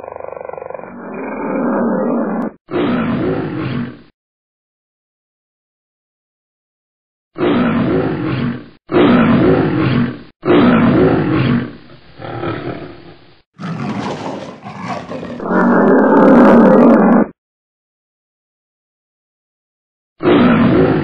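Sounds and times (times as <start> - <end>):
animal roars: 0.0 - 4.1, 7.4 - 17.4, 20.2 - 21.0.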